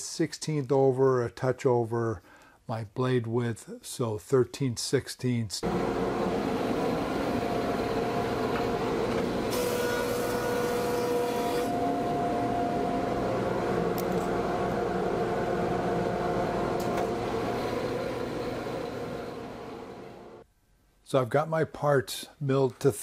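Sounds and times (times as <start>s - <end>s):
planer cutting hiss: 5.6s - 14.8s
planer machine hum: 5.6s - 20.4s.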